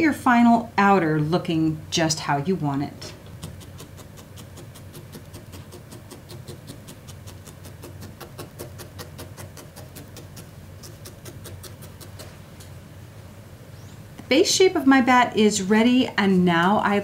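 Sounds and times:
low steady hum: 0.0 - 17.0
felting needle poking wool: 3.3 - 12.8.

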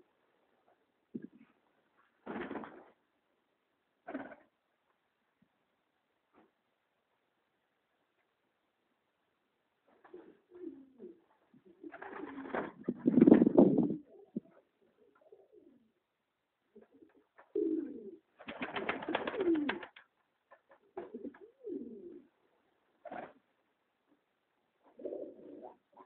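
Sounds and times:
pigeons cooing: 10.1 - 15.9, 16.8 - 18.3, 19.0 - 20.0, 21.0 - 22.3, 24.9 - 26.0
broad rustling noise: 11.3 - 14.0.

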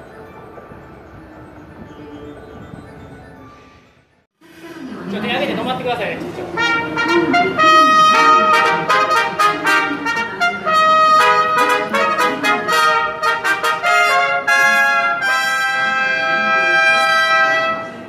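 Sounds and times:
trumpets playing a fanfare: 6.5 - 18.0.

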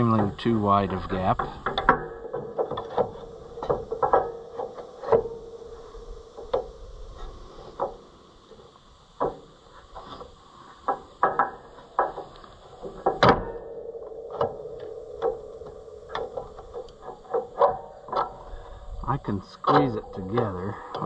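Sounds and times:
wooden pieces knocking on iron: 0.0 - 5.5, 10.8 - 18.6.

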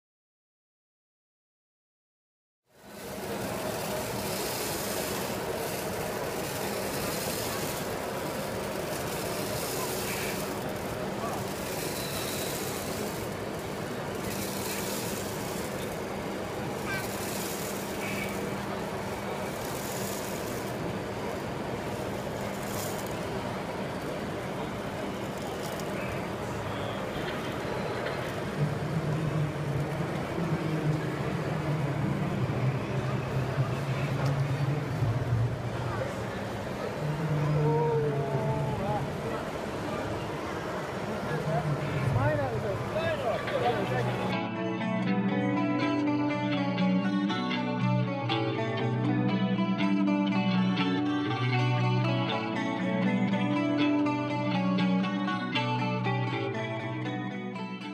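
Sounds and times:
busy hall background noise: 2.7 - 57.9
model truck mechanical hum: 2.8 - 37.7.

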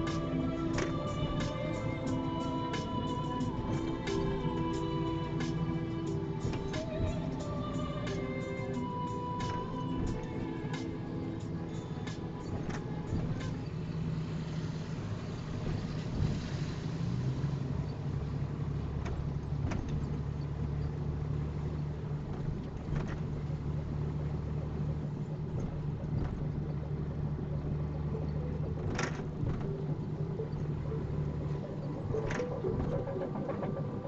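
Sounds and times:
faint clicks: 0.0 - 14.0
vehicle engine and road drone: 0.0 - 34.0.

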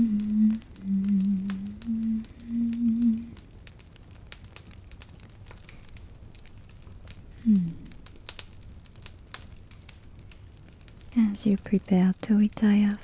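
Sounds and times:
woman humming: 0.0 - 3.4, 7.4 - 8.0.

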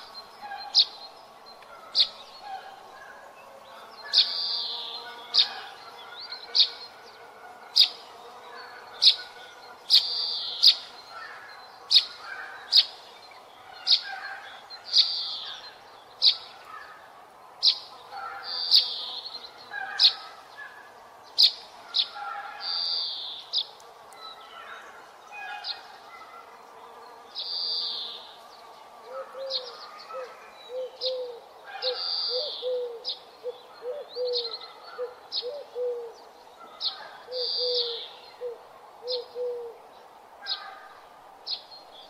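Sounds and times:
faint outdoor background: 0.0 - 42.0
raspy bird calls: 8.6 - 17.0, 17.6 - 23.7, 29.1 - 39.8.

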